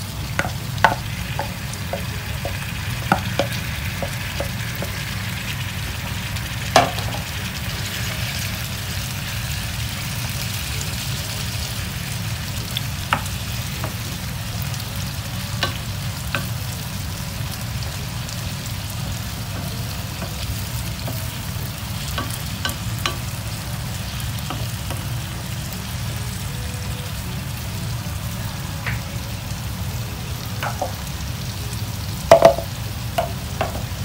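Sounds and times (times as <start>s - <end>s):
vegetables sizzling in a frying pan: 0.0s - 34.0s
spatula knocking against pan: 0.4s - 5.3s.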